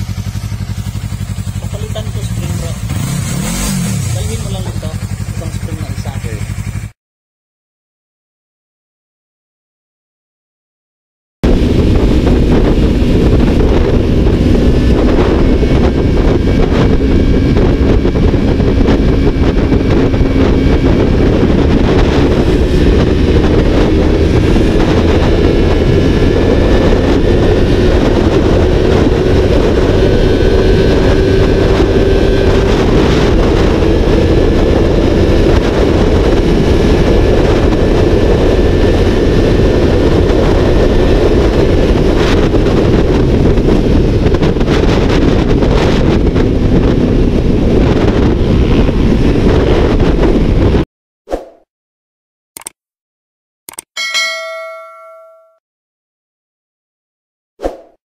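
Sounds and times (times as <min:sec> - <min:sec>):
motorcycle engine cruising: 0:00.0 - 0:07.0, 0:11.4 - 0:50.8
wind rush on microphone: 0:11.4 - 0:50.9.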